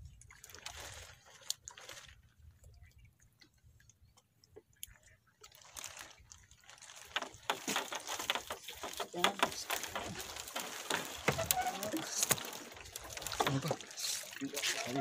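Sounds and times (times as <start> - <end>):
fishing net crackling and rustling: 0.3 - 2.7, 5.4 - 15.0.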